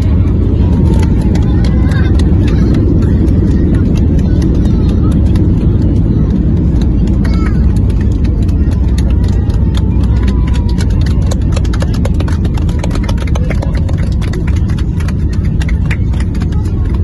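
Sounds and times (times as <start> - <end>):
airliner low rumble: 0.0 - 17.0.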